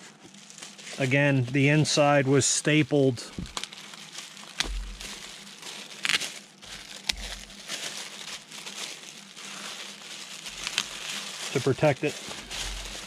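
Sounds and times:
plastic bag crinkling: 0:00.0 - 0:13.0
soft bumps: 0:03.3 - 0:03.6, 0:04.6 - 0:05.3.

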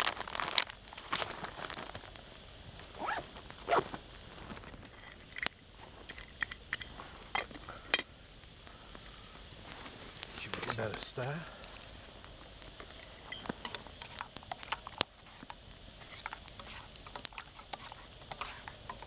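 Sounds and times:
campfire crackling: 0:00.0 - 0:19.0
metal pot clinking and scraping: 0:13.2 - 0:15.0.

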